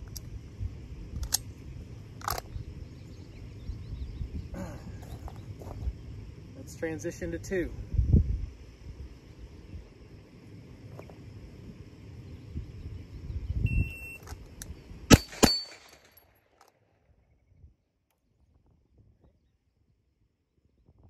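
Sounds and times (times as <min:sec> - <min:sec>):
pistol shots: 0:15.1 - 0:16.1.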